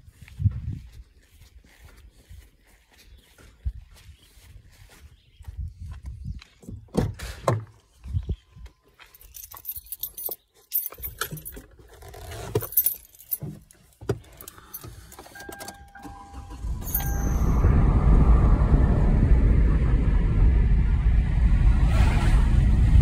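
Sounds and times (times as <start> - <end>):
car keys jangling: 9.2 - 17.6
car engine starting: 14.5 - 23.0
brief electronic tones: 15.4 - 17.9.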